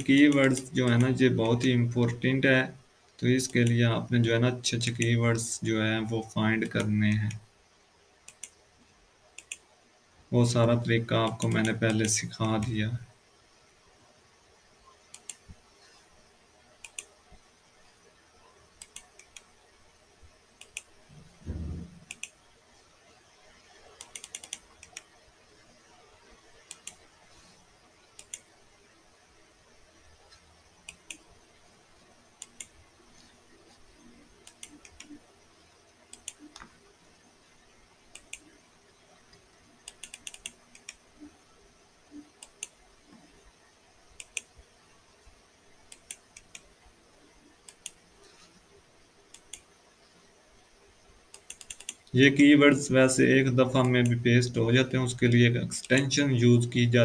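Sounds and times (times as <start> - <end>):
mouse and keyboard clicks: 16.8 - 17.1, 18.8 - 19.5, 21.5 - 22.4, 24.0 - 25.1, 28.2 - 28.5, 34.4 - 35.2, 36.1 - 36.7, 39.8 - 41.0, 42.4 - 42.8, 47.7 - 48.5, 51.3 - 52.1
muffled low thump: 21.4 - 22.0.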